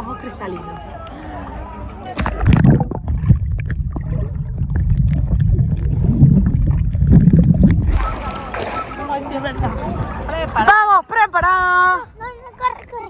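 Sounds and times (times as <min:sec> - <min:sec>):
underwater sloshing and bubbling: 0:02.1 - 0:10.8, 0:12.3 - 0:13.0.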